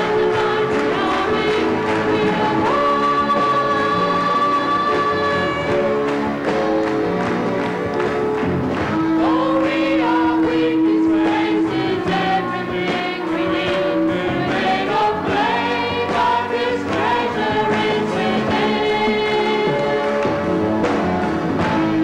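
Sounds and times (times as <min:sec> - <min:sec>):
women singing worship song: 0:00.0 - 0:06.0, 0:09.0 - 0:19.9
band playing: 0:00.0 - 0:22.0.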